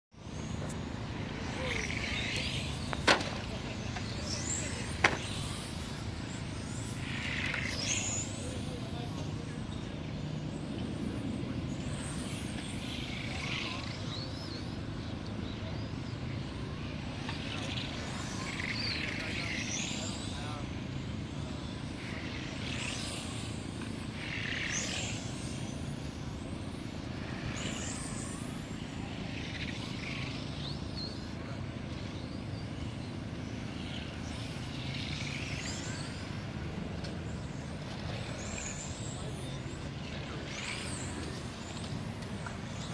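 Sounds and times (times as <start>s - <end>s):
electric rc car motors whining: 0.3s - 10.8s, 16.4s - 20.5s, 21.3s - 31.4s, 33.7s - 42.9s.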